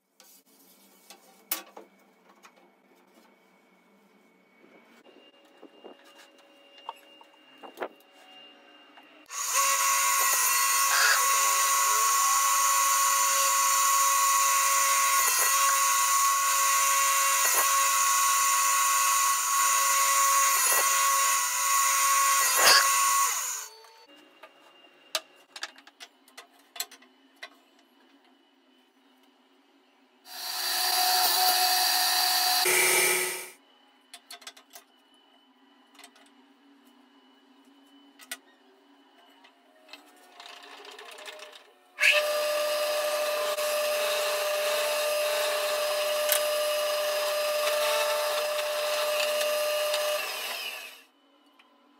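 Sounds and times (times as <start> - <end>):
table saw running: 9.2 - 23.8, 30.3 - 33.6, 42.0 - 51.0
power tool winding down: 9.3 - 23.8, 30.3 - 33.6, 42.0 - 51.0.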